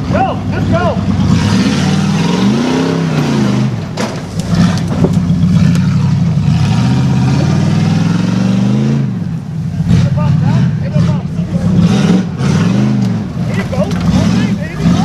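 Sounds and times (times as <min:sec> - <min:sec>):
truck engine revving: 0:00.0 - 0:15.0
sharp knocks: 0:03.8 - 0:05.7.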